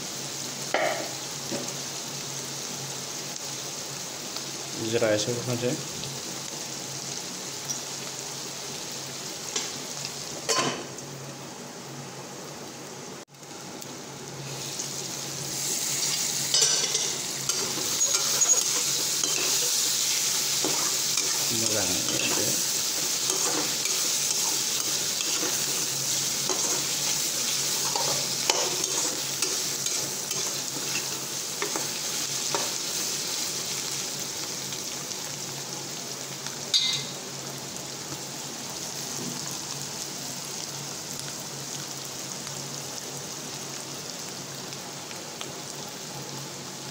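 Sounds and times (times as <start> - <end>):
pork sizzling in a pan: 0.0 - 46.9
spatula scraping a pan: 22.1 - 25.9.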